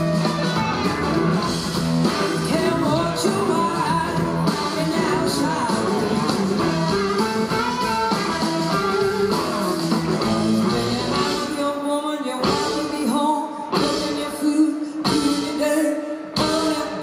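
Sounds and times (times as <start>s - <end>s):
blues-rock band playing: 0.0s - 17.0s
woman singing: 2.4s - 6.2s, 10.4s - 17.0s.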